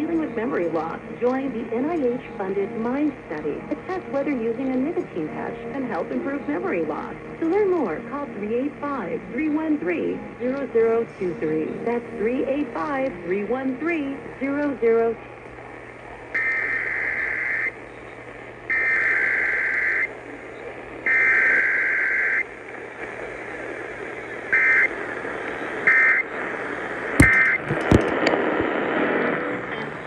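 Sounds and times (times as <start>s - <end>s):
screechy digital data bursts: 27.2s - 27.6s
sharp knocks: 27.2s - 28.1s.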